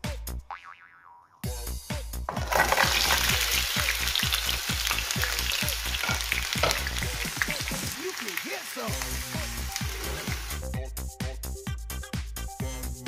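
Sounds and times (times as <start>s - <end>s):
shrimp sizzling in hot oil: 2.3s - 10.7s.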